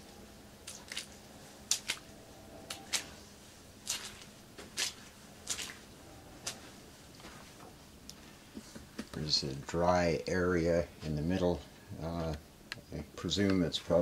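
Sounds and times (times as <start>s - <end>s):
footsteps squishing on wet carpet: 3.8s - 5.9s.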